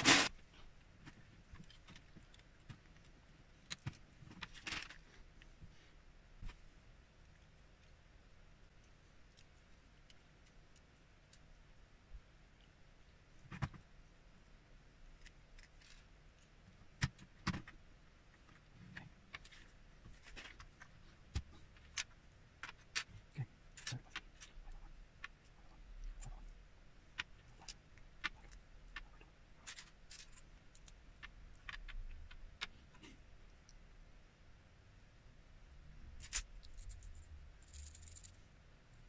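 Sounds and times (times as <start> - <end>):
plastic pieces clicking: 23.8 - 25.4, 27.2 - 32.8, 36.2 - 38.4.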